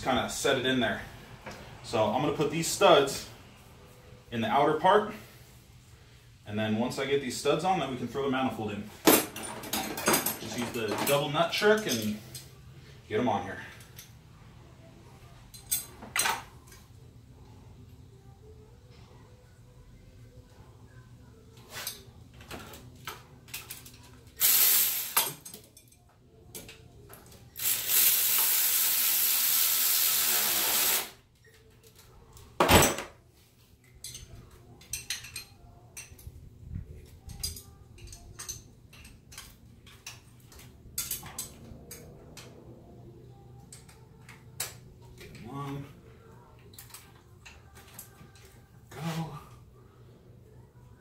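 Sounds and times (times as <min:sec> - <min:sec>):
wrench and nuts clinking: 0:37.2 - 0:42.6.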